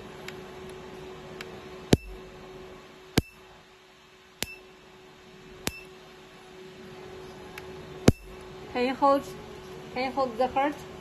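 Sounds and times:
machine low hum: 0:00.0 - 0:11.0
laser pulse snaps: 0:05.6 - 0:05.9.

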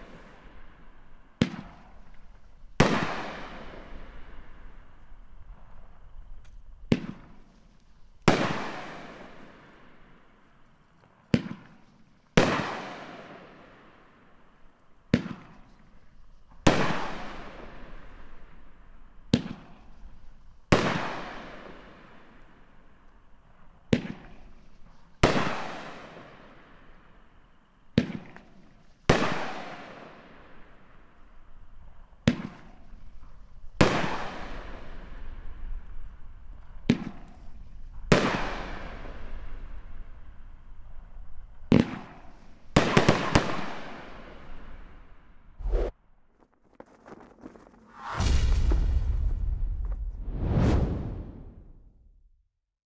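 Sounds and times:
firework aerial break: 0:45.6 - 0:46.0, 0:46.9 - 0:52.3
firework launch thump: 0:47.9 - 0:52.4.

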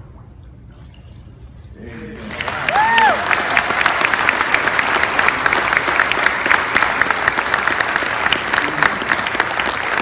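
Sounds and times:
crowd applauding: 0:02.2 - 0:10.0.

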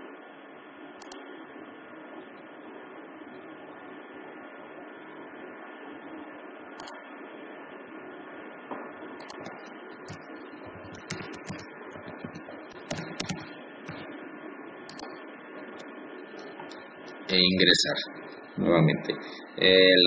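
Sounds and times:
keyboard and mouse clicks: 0:01.0 - 0:01.2, 0:09.2 - 0:14.1, 0:14.9 - 0:15.1.

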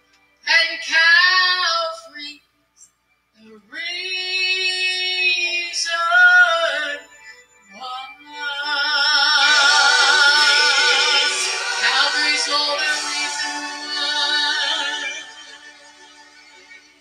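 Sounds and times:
woman singing gospel into microphone: 0:07.8 - 0:15.5.

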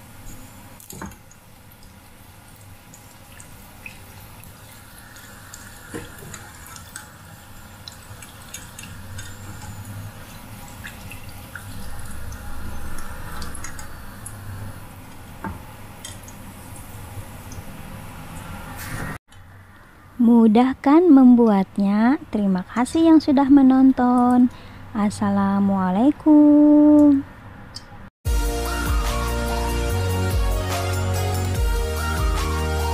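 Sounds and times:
deep-frying sizzling and bubbling: 0:00.0 - 0:19.4.

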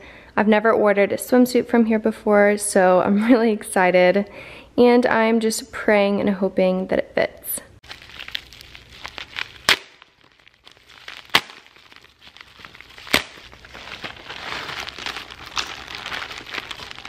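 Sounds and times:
envelope flap ripping: 0:07.8 - 0:17.0
plastic bag crinkling: 0:07.8 - 0:17.0.

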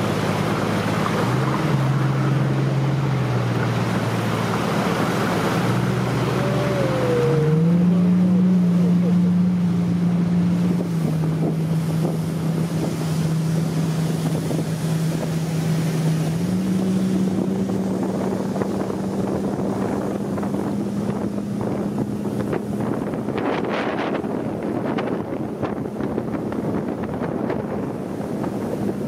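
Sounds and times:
boat engine running: 0:00.0 - 0:29.0
water rushing past hull: 0:00.0 - 0:29.0
wind on microphone: 0:00.0 - 0:29.0
wind buffets crackling: 0:09.6 - 0:29.0.

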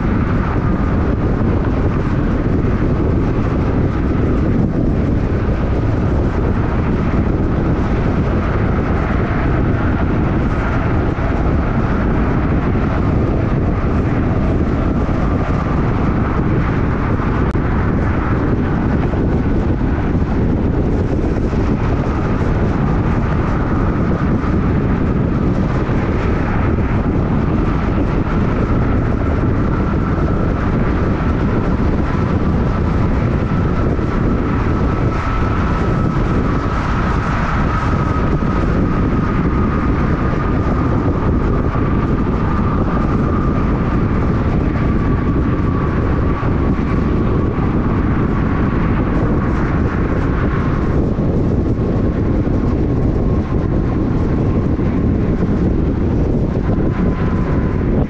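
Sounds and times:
car road and tyre noise: 0:00.0 - 0:58.0
faint steady whine: 0:00.0 - 0:58.0.

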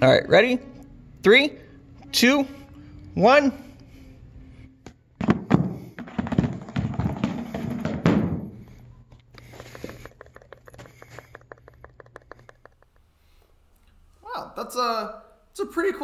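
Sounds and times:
books toppling onto carpet: 0:05.2 - 0:08.5.

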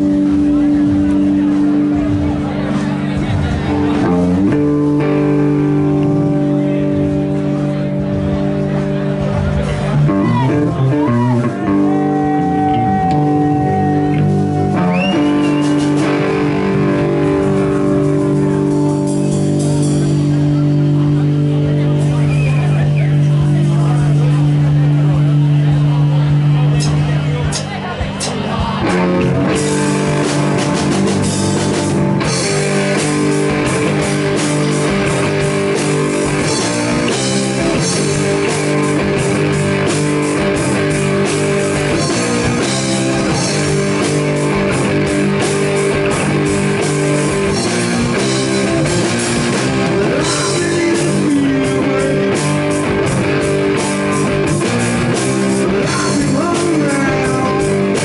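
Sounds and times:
blues-rock band playing loud: 0:00.0 - 0:58.0.

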